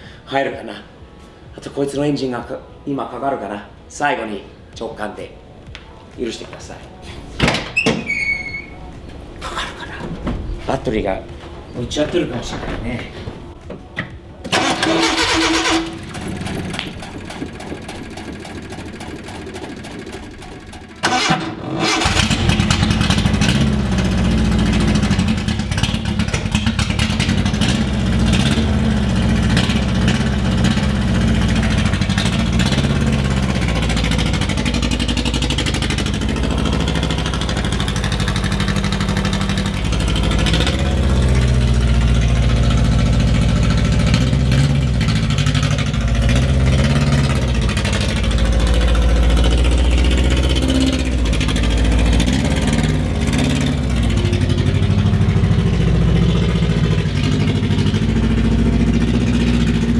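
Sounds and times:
truck engine starting and running: 0:14.4 - 0:59.9.

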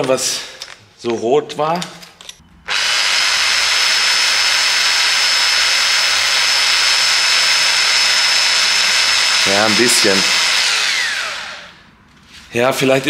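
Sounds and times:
electric drill whine: 0:02.6 - 0:11.9.

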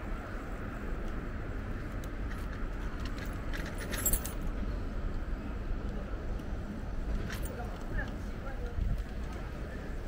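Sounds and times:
road rumble from electric bike: 0:00.0 - 0:10.0
wind: 0:00.0 - 0:10.0
light metallic jingling rattles: 0:02.2 - 0:04.6, 0:07.1 - 0:08.0.

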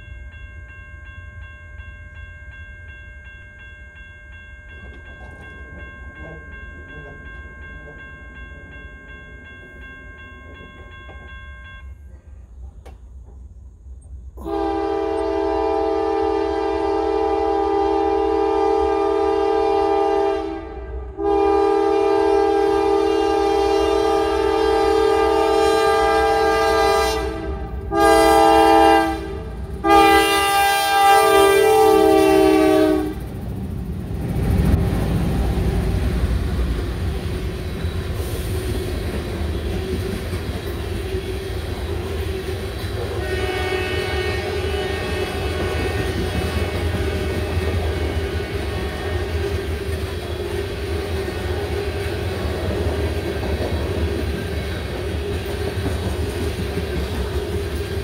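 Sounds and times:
crossing warning bell ringing: 0:00.0 - 0:12.3, 0:14.4 - 0:55.9
locomotive air horn: 0:14.4 - 0:33.3, 0:43.0 - 0:49.5.

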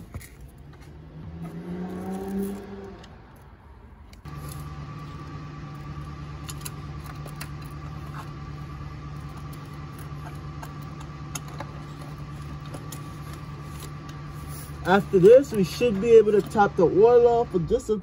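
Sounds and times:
low steady hum: 0:00.0 - 0:18.0
tools clicking and rattling: 0:06.4 - 0:08.4, 0:09.2 - 0:14.2.

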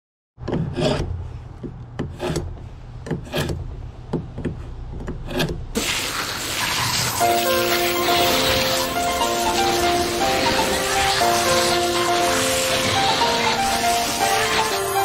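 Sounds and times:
blade scraping fish: 0:05.8 - 0:15.0
steady hiss: 0:05.8 - 0:15.0.

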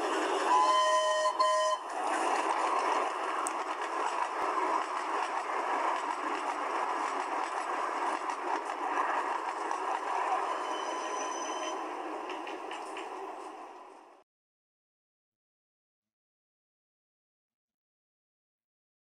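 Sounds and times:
train running rushing noise: 0:00.0 - 0:14.2
train horn chord: 0:00.5 - 0:01.9.

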